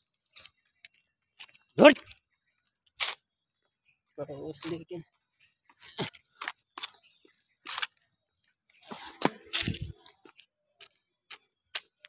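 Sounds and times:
hurried footsteps on pavement: 5.1s - 12.0s
camera handling noise: 9.4s - 10.0s.

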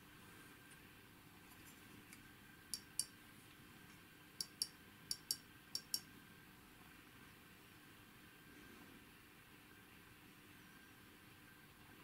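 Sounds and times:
microswitch clicking: 4.4s - 6.1s.

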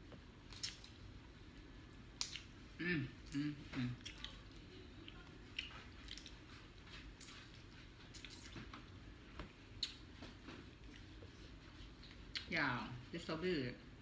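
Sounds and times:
chewing and mouth smacks: 0.4s - 1.0s, 2.1s - 2.6s, 4.0s - 12.5s.

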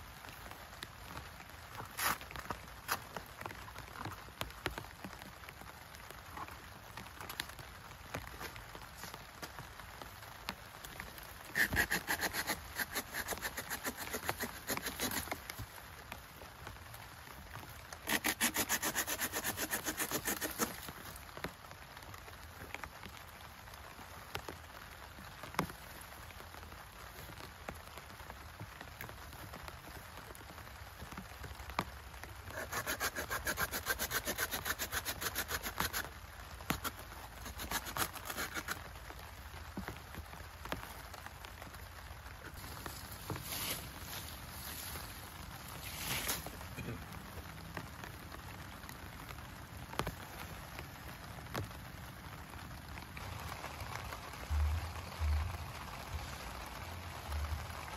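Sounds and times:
steady rain: 0.0s - 57.9s
rasping strokes on wood: 11.5s - 15.4s, 18.1s - 20.8s, 32.5s - 36.1s, 36.7s - 38.8s.

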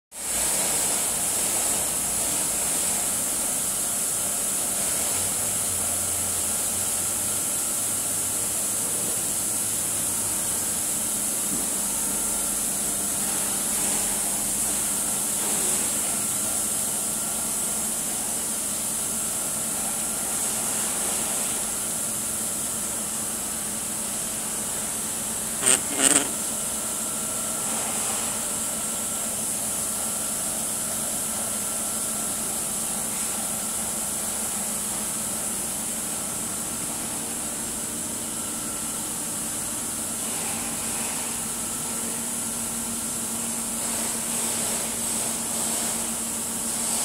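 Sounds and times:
air compressor hum: 0.2s - 47.0s.

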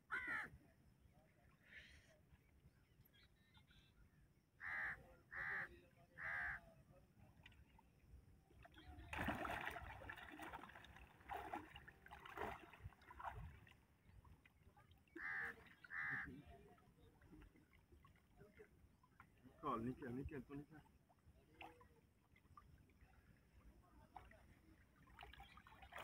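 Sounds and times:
crow cawing: 0.1s - 0.5s
water splashing and churning: 7.3s - 26.0s.

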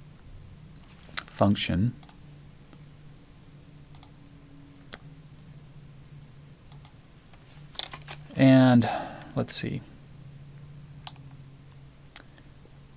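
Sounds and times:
faint low hum: 0.0s - 12.9s
mouse and keyboard clicks: 3.9s - 4.1s.

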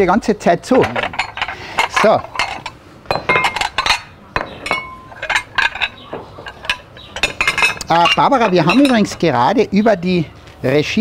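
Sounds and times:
cutlery clinking on ceramic plates: 0.8s - 9.4s.

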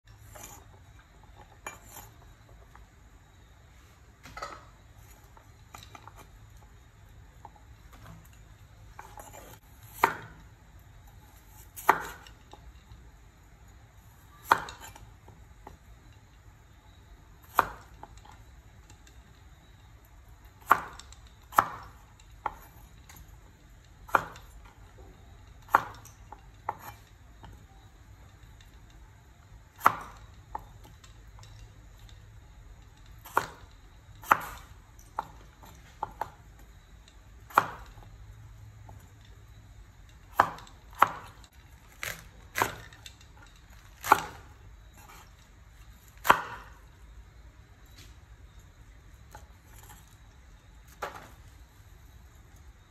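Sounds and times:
cleaver chopping on wooden board: 9.4s - 10.4s, 11.8s - 12.2s, 17.5s - 17.8s, 25.7s - 26.0s, 33.2s - 33.6s, 37.5s - 37.9s, 40.3s - 41.4s, 42.0s - 42.9s, 44.0s - 44.4s, 46.2s - 46.7s.

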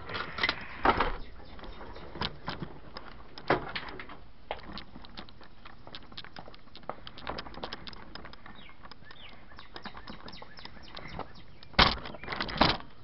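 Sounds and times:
rc car clicking and rattling: 0.0s - 13.0s
faint bird chirps: 8.4s - 12.5s.

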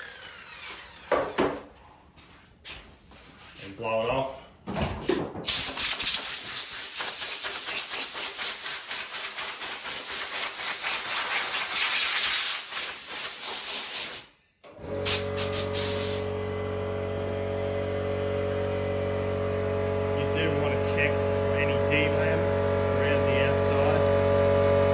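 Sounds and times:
compressed air blow gun hissing: 5.5s - 14.3s, 15.1s - 16.3s.

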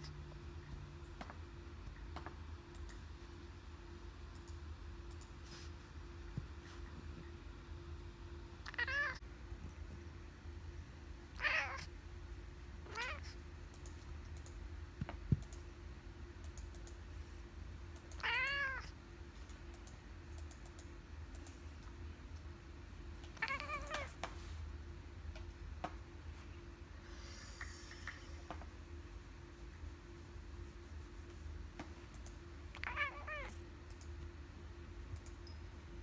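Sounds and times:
cat meowing: 8.7s - 9.2s, 11.4s - 11.9s, 18.2s - 18.9s.

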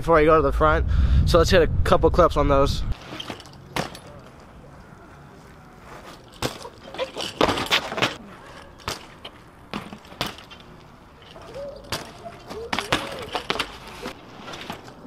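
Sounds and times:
bike tyres rolling: 2.9s - 15.0s
short squeaks: 6.2s - 9.2s
bike knocking on concrete ledge: 8.8s - 14.1s.

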